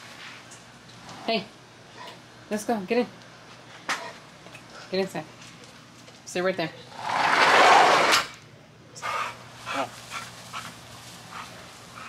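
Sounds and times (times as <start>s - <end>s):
loud rushing noise: 6.9s - 8.3s.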